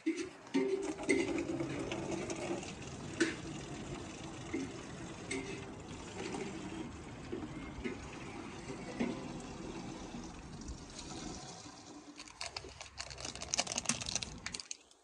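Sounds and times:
water running into watering can: 0.1 - 14.9.

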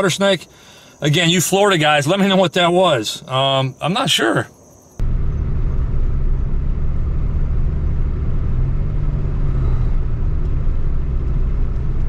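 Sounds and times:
car engine at cruising speed: 5.0 - 12.0
tyre noise on asphalt: 5.0 - 12.0.

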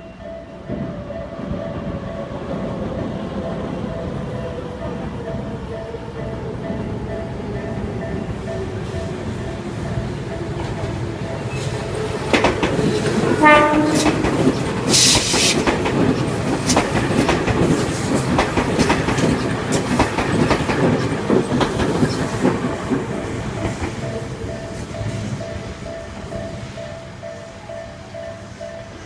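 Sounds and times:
electric train passing: 0.0 - 29.0
wheels clicking over rail joints: 10.0 - 25.3
train horn toot: 13.2 - 14.4
level crossing warning bells: 22.6 - 29.0.

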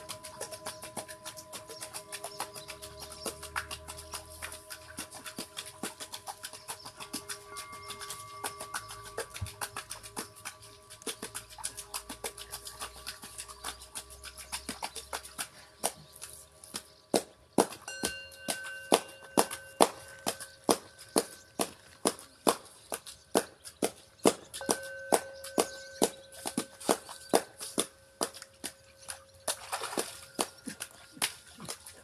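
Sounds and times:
singing bowls ringing: 6.9 - 10.8, 17.9 - 21.6, 24.6 - 27.3.

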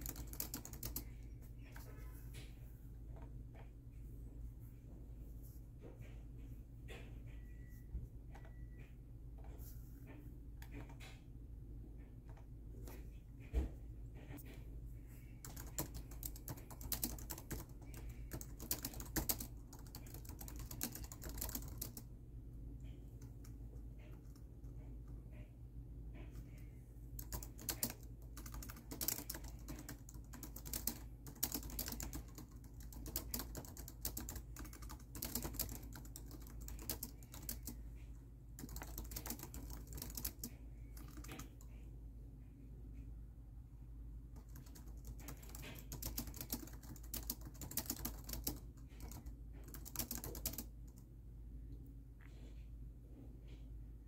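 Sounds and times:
laptop keyboard typing: 0.0 - 1.9, 15.3 - 22.1, 26.1 - 37.8, 38.6 - 41.8, 44.3 - 51.0
steady low hum: 0.0 - 54.0.

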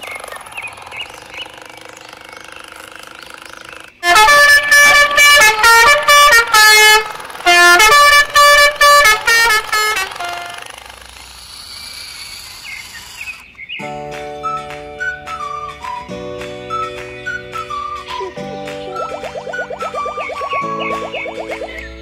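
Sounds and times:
electronic musical horn tune: 4.0 - 10.6.

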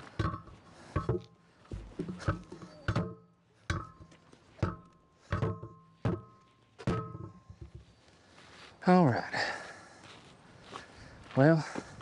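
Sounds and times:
steel wheel rim clanking: 0.0 - 7.8.

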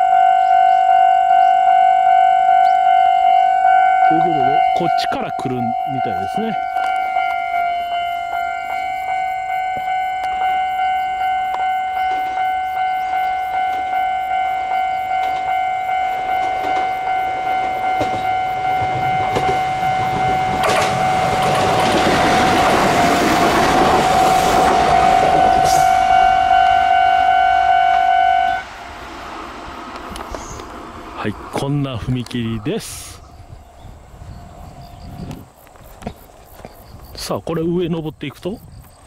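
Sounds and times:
level crossing bell dinging: 0.0 - 21.6
train rumbling past: 0.0 - 37.0.

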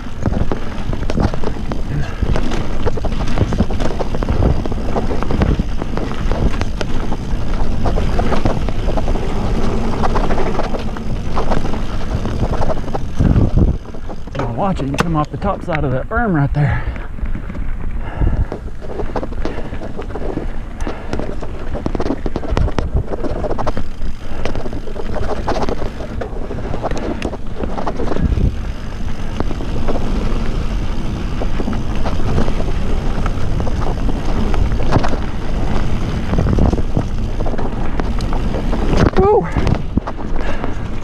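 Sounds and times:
bike rattling over bumps: 0.0 - 41.0
wind buffeting microphone: 0.0 - 41.0.

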